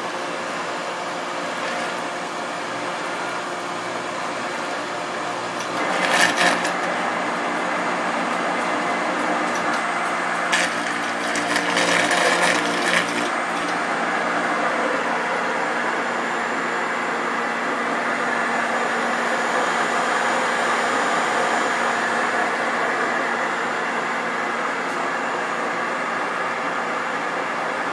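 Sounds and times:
electric motor running: 10.4 - 16.0.

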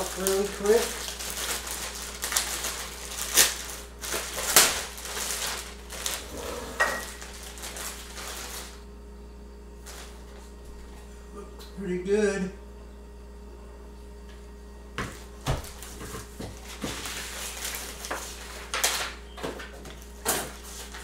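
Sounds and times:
plastic bag crinkling: 0.0 - 8.8, 9.8 - 10.4, 15.6 - 21.0.

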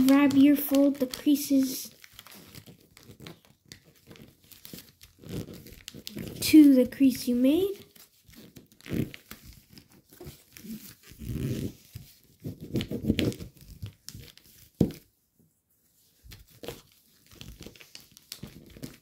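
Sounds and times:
foil paper crinkling: 0.0 - 14.8, 16.1 - 19.0.

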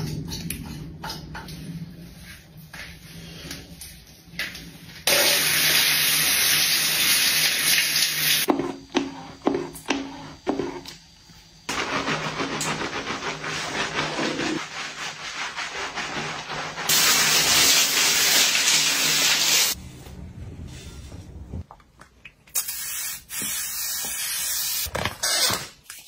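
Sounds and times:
shower water rushing: 5.1 - 8.5, 11.8 - 19.8.

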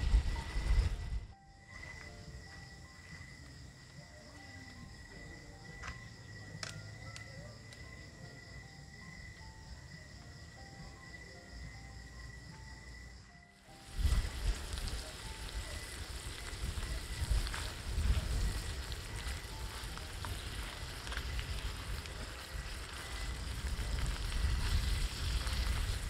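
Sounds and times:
food sizzling in a skillet: 13.6 - 26.0.

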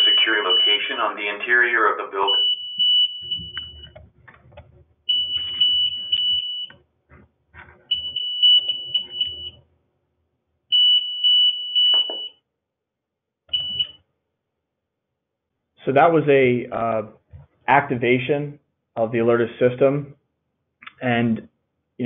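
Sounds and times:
high-pitched pulsing alarm tone: 2.3 - 4.0.

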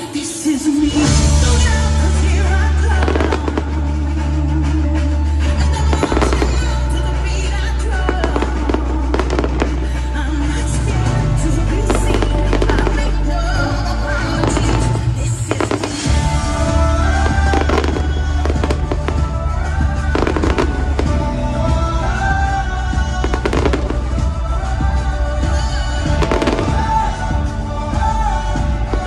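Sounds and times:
loud music with deep bass: 0.0 - 29.0
fireworks bangs and crackles: 2.9 - 4.2, 14.4 - 21.7, 23.2 - 24.8, 25.4 - 27.5.

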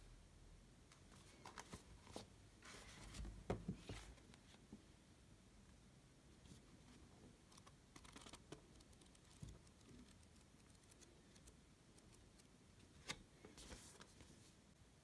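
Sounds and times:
book pages flipping: 1.1 - 4.3, 7.5 - 14.4.

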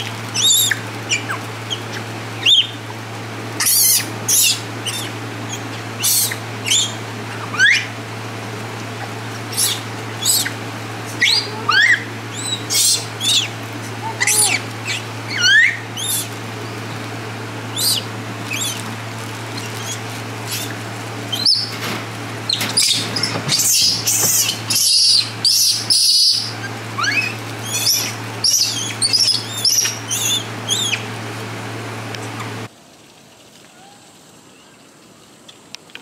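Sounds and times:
steady low hum: 0.0 - 32.7
high animal chirps and whistles: 3.6 - 7.9, 9.5 - 10.6, 11.2 - 13.5, 14.1 - 16.3, 17.8 - 18.8, 21.3 - 21.8, 22.5 - 31.0.

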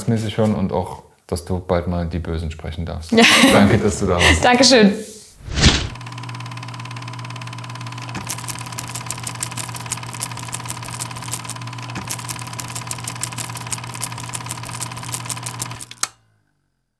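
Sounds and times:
machine humming: 5.8 - 16.2
fast clatter of clicks: 8.2 - 16.0.

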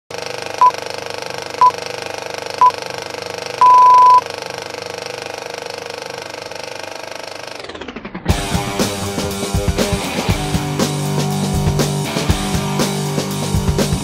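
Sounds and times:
high beeps: 3.6 - 4.2
film projector clattering: 4.4 - 7.3.

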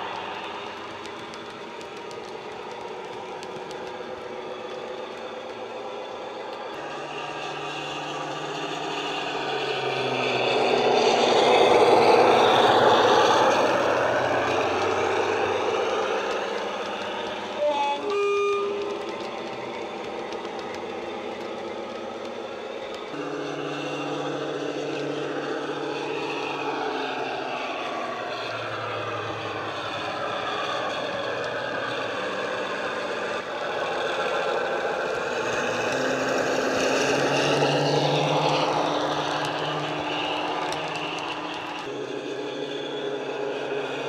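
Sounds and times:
model train diesel engine sound: 0.0 - 44.0
train horn: 6.8 - 19.5, 23.1 - 33.6.

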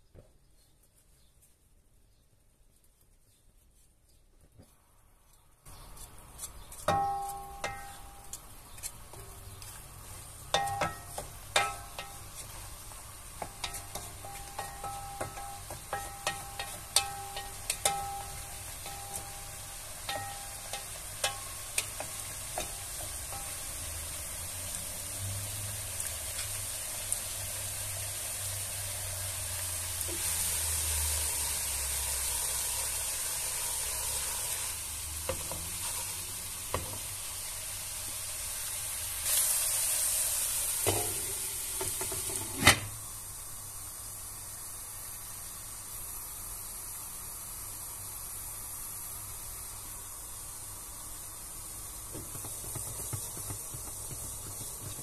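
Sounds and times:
meat and onions sizzling: 6.2 - 55.0
glass lid clinking on pan: 20.1 - 21.5.

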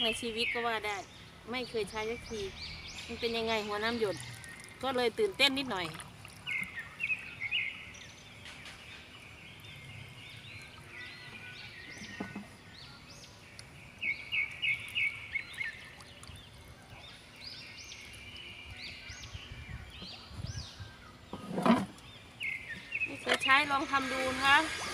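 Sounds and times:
birds chirping: 0.0 - 24.9.

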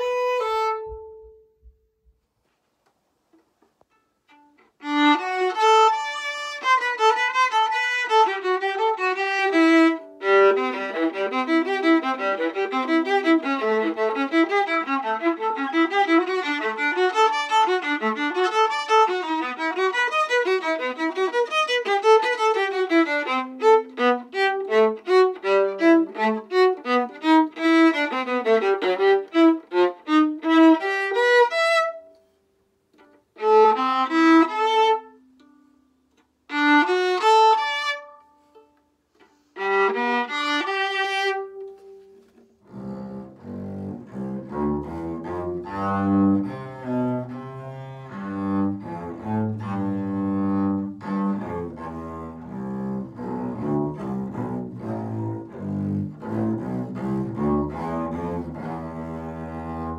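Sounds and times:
solo violin: 0.0 - 1.8, 3.8 - 32.3, 32.9 - 35.6, 36.4 - 59.9.

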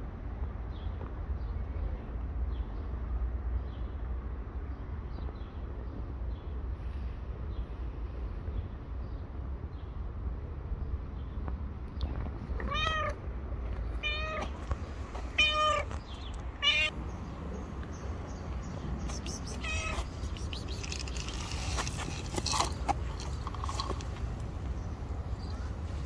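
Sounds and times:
cat meowing: 12.6 - 13.2, 14.0 - 14.6, 15.3 - 16.0, 16.6 - 17.0, 19.1 - 20.4
clicks and rustles: 19.0 - 24.8.

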